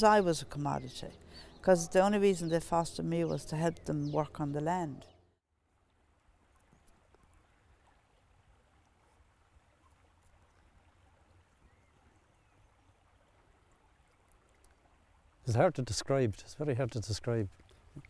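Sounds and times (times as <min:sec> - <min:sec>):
small stream flowing: 0:05.5 - 0:18.0.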